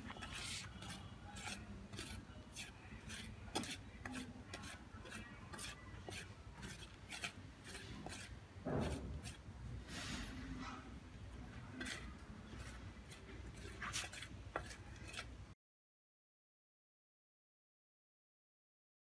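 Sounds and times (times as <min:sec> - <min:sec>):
stick scraping feed on metal tray: 0:00.0 - 0:11.0, 0:11.7 - 0:15.3.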